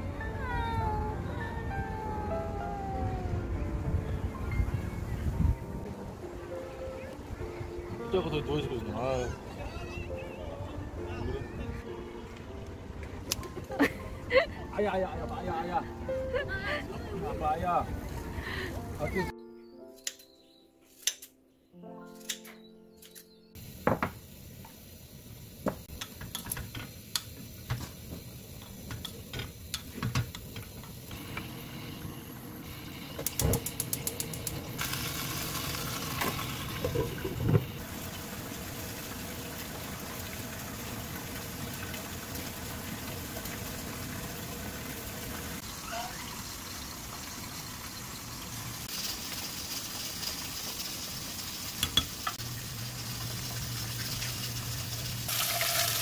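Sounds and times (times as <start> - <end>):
sizzling hiss: 23.6 - 56.0
utensils clicking and knocking: 25.9 - 27.9, 33.2 - 34.9.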